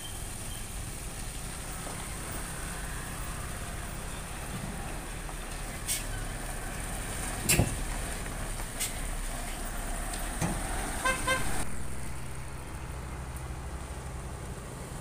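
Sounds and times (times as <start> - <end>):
diesel truck passing: 0.0 - 15.0
vehicle horn toots: 11.0 - 11.6.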